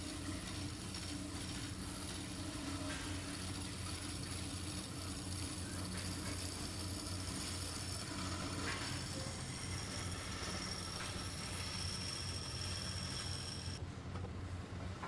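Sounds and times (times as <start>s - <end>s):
wood lathe humming: 0.0s - 13.8s
tool cutting wood hiss: 2.8s - 13.8s.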